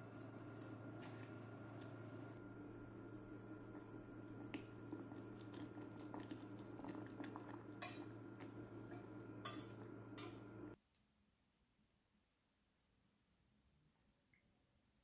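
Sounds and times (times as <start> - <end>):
whisk clinking and scraping pot: 0.0 - 1.9, 6.9 - 10.6
low hum: 0.0 - 10.8
syrup simmering: 0.1 - 10.8.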